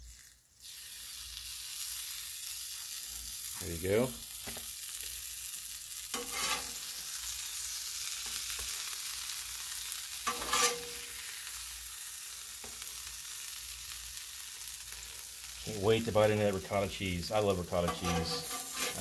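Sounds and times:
food sizzling on griddle: 0.0s - 19.0s
metal spatula scraping griddle: 6.1s - 7.1s, 10.2s - 11.4s, 17.4s - 19.0s.

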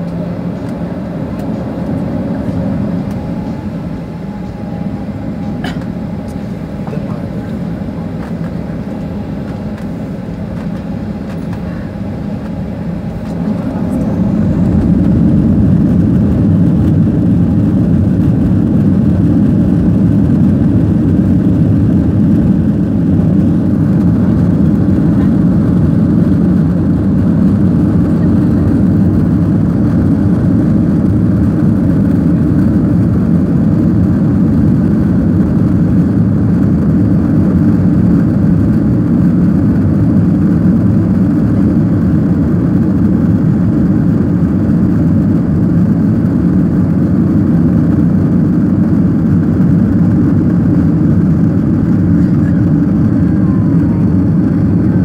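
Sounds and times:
jet engines rumbling in cabin: 0.0s - 55.0s.

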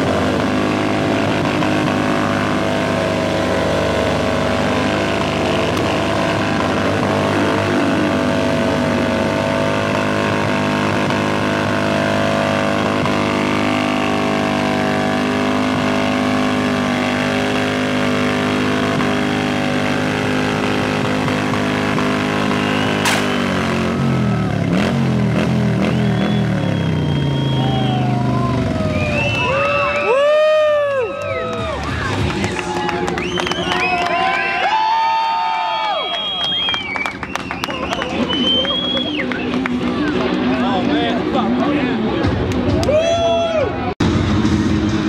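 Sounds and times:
motorcycle engine revving: 0.0s - 30.0s
tyre blowing out with bang: 22.8s - 23.7s.

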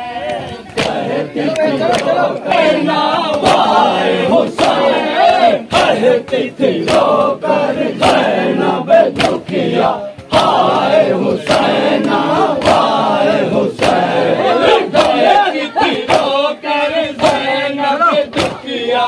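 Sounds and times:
men chanting in unison: 0.0s - 19.0s
hands slapping chests: 0.2s - 7.4s, 9.1s - 14.2s, 14.9s - 16.4s, 17.2s - 17.5s, 18.3s - 18.7s.

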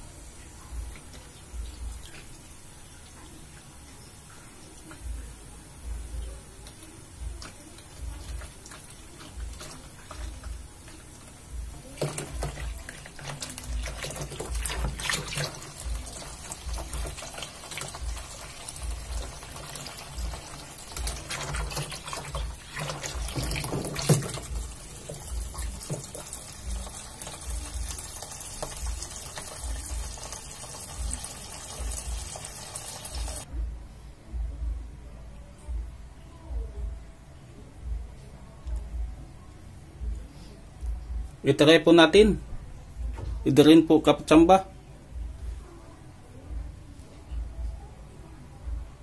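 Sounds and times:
water running from a hose: 6.6s - 33.5s.

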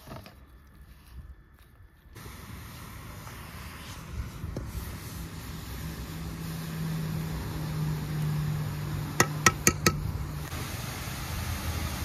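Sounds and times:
spoon tapping steel pan: 9.2s - 10.0s.

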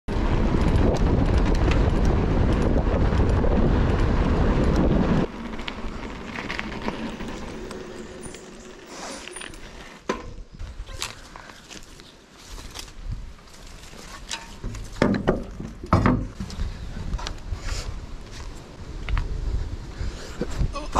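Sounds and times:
wind buffeting microphone: 0.1s - 8.8s, 13.0s - 13.5s, 15.4s - 20.9s
bike rolling noise: 0.1s - 20.9s.

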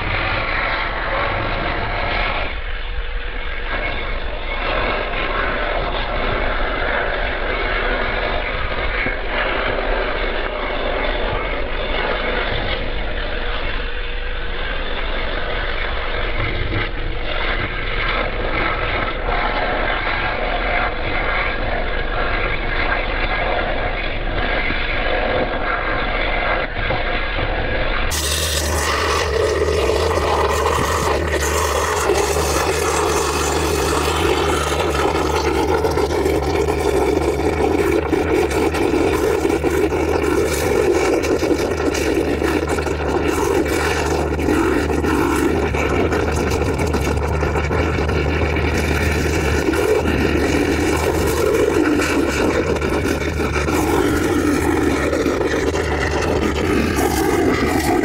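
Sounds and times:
low drone: 0.0s - 58.0s
oxygen lance rushing: 28.1s - 58.0s.

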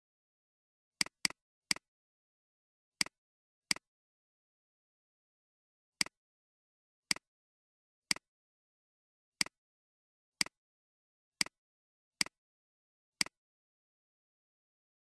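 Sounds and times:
computer mouse clicks: 13.2s - 13.4s.

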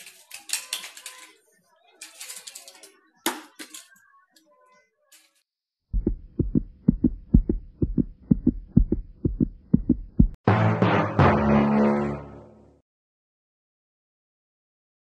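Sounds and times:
heartbeat thumps: 5.9s - 10.4s.

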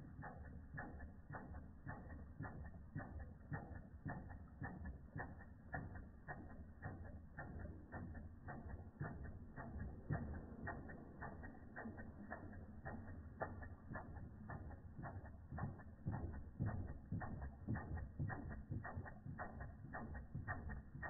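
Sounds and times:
toy steam engine clicking: 0.0s - 21.0s
low rumble: 7.3s - 21.0s.

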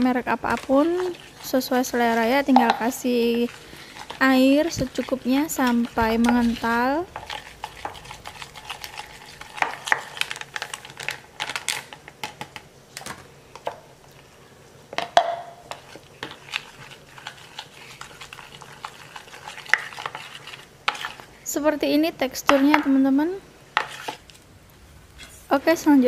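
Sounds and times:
spoon scraping plastic bowl: 0.0s - 11.8s, 15.5s - 21.3s, 23.8s - 24.4s.

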